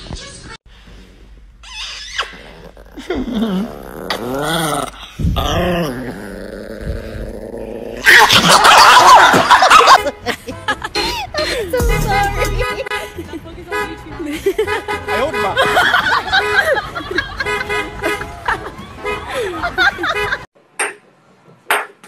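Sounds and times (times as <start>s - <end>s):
small dog growling: 2.4s - 8.0s.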